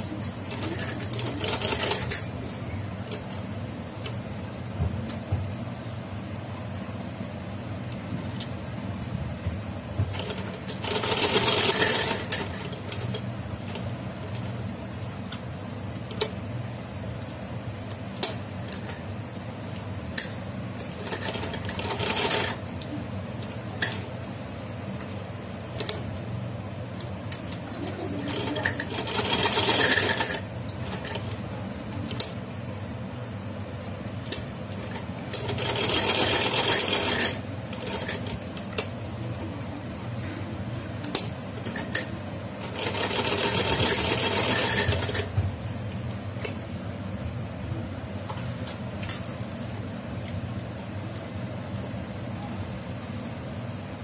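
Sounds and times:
sewing machine running: 0.0 - 2.3, 10.1 - 13.2, 20.9 - 22.6, 27.8 - 31.4, 35.3 - 38.4, 42.6 - 45.3
sewing machine rattling: 0.5 - 2.3, 10.1 - 13.8, 20.9 - 22.6, 27.9 - 31.4, 34.8 - 38.4, 41.6 - 45.3.

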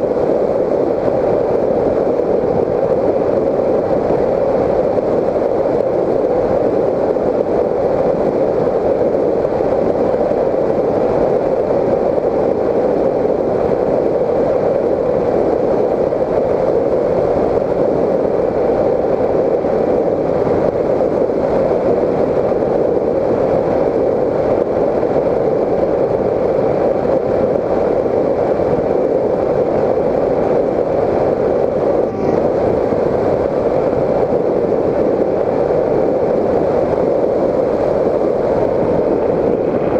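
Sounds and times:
rush of airflow: 0.0 - 39.9
model plane motor drone: 32.0 - 32.8.

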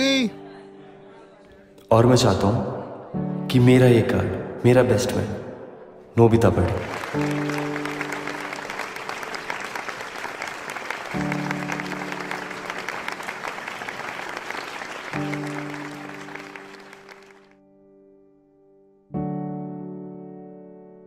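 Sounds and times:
slow piano chords: 0.0 - 21.0
crowd applauding: 6.4 - 17.6.

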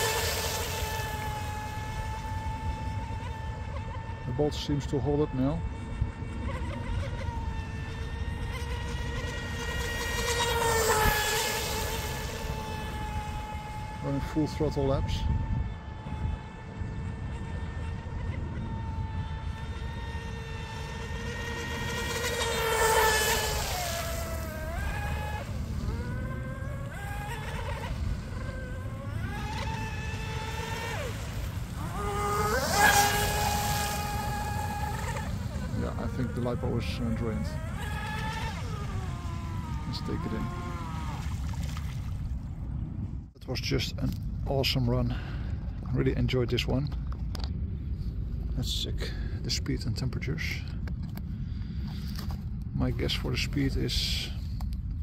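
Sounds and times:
electric boat motor whining: 0.0 - 42.8.

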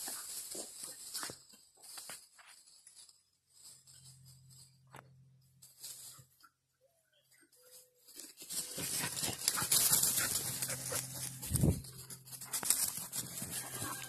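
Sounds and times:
dogs rustling through dry leaves: 8.1 - 14.0.

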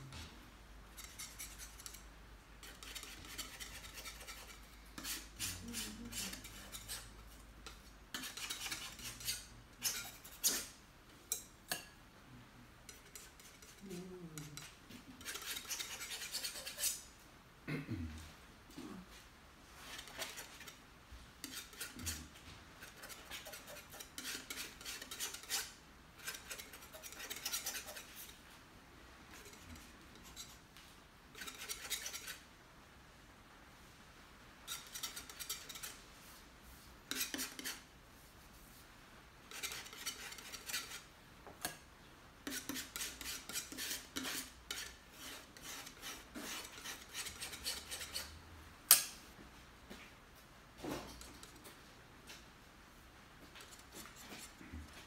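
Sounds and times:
paintbrush scratching and scrubbing: 0.9 - 2.0, 2.6 - 10.8, 12.9 - 17.0, 19.8 - 20.8, 21.4 - 28.4, 29.3 - 30.6, 31.4 - 32.4, 34.7 - 38.8, 39.5 - 41.1, 42.4 - 48.3, 53.6 - 55.0.

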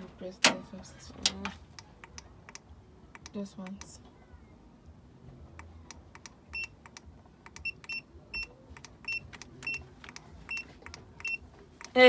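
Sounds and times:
keypad button clicks: 6.2 - 11.4.

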